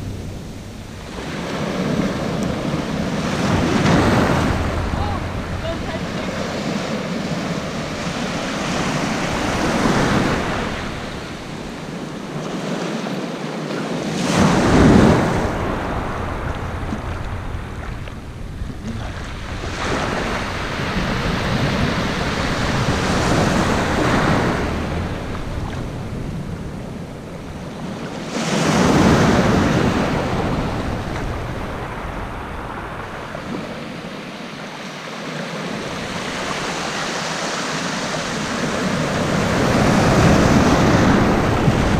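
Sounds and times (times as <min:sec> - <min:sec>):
small waves breaking on beach: 0:00.0 - 0:41.9
wind rumbling on microphone: 0:00.0 - 0:41.9.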